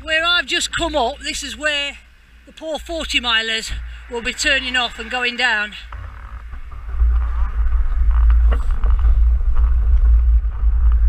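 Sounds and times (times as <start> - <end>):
wind rumbling on microphone: 2.4 - 11.0.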